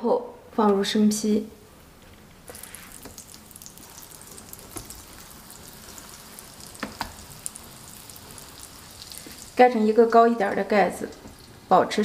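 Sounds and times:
hot oil sizzling and crackling: 2.4 - 12.0.

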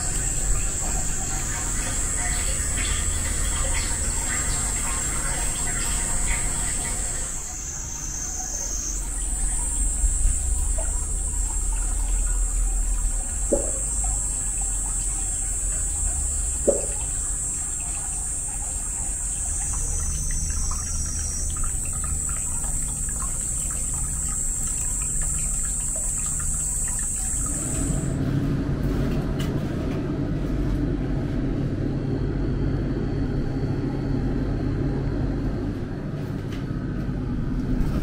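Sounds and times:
water trickling into rock bath: 0.0 - 28.1
water plops: 8.3 - 28.0.

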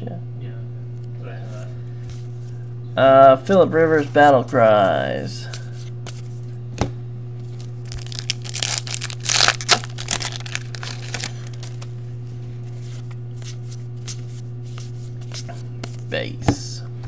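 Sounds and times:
foil wrapper tearing and crinkling: 7.6 - 11.9.

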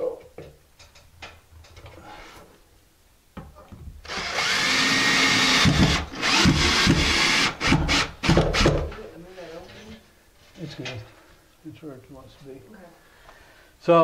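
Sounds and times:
cordless drill driving screw: 4.1 - 8.4.

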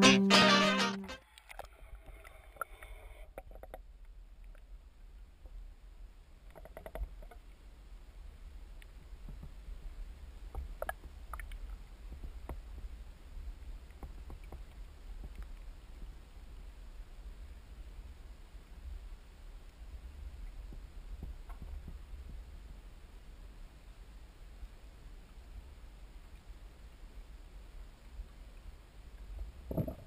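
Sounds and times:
guitar chord: 0.0 - 1.2
faint clicks and ticks: 1.0 - 4.8, 6.4 - 7.7, 8.7 - 9.8, 10.4 - 16.2.

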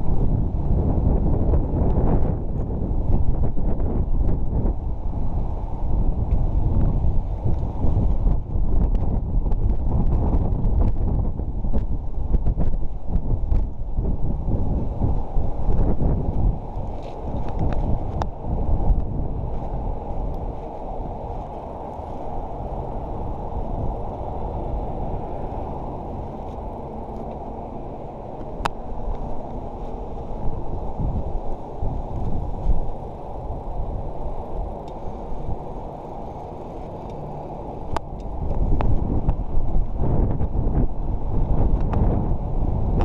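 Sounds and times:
wind rumbling on microphone: 0.0 - 43.0.

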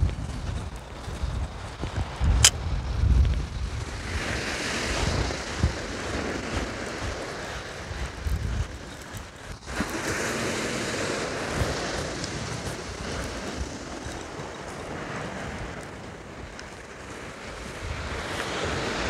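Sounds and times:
wind buffeting microphone: 0.0 - 19.0
sharp click: 2.4 - 2.6
surf breaking on beach: 3.6 - 19.0.

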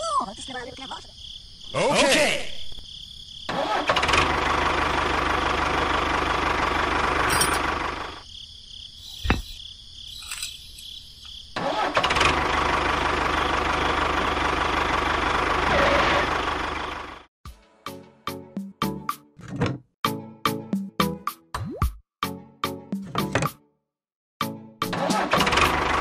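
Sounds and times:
tractor engine running: 3.5 - 8.2, 11.6 - 17.3, 24.9 - 26.0.

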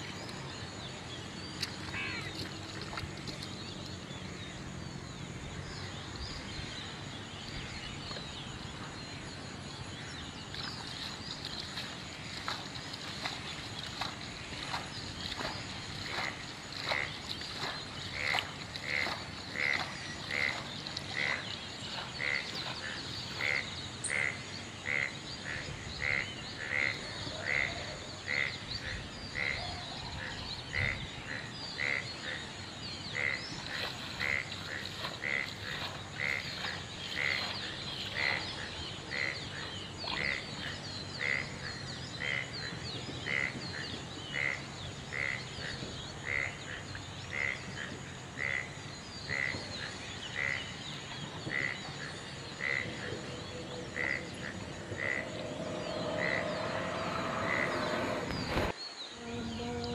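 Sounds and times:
frog calling rhythmically: 1.9 - 2.3, 15.3 - 22.6, 23.3 - 32.5, 33.1 - 45.6, 46.2 - 47.7, 48.4 - 49.7, 50.3 - 50.8, 51.5 - 57.9.

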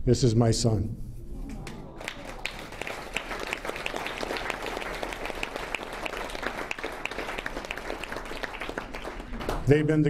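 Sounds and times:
crowd applauding: 1.6 - 9.7.

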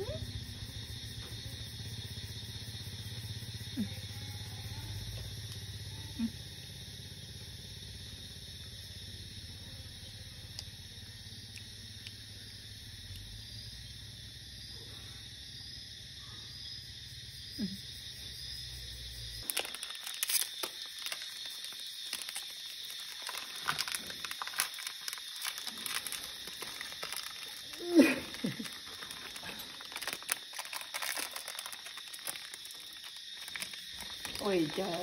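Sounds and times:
insects chirping: 0.0 - 35.0
plastic snack packet crinkling: 19.4 - 35.0.

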